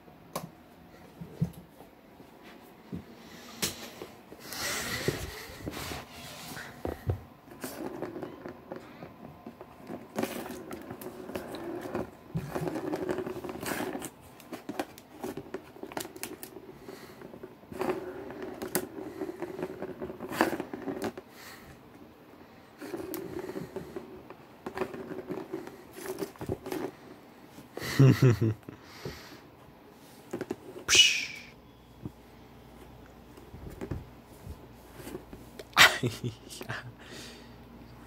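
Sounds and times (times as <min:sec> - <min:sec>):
ball rolling on plastic track: 0:06.8 - 0:21.3, 0:22.8 - 0:27.1.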